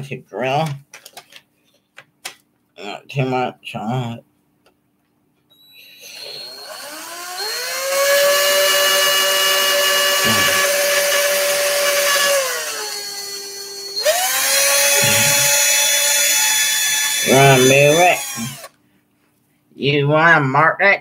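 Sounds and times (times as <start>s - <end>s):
cordless drill boring wood: 5.7s - 18.7s.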